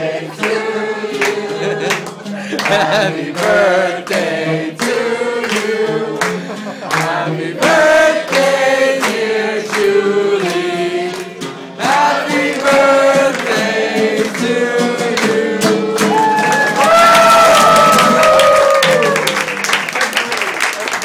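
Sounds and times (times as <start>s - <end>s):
man singing: 0.0s - 11.0s, 11.8s - 16.2s.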